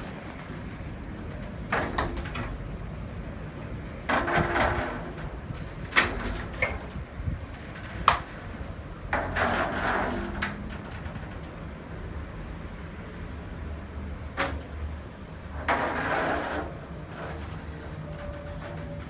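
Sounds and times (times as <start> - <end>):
glass panels rolling on track: 0.0 - 2.7, 4.0 - 11.6, 15.5 - 19.0.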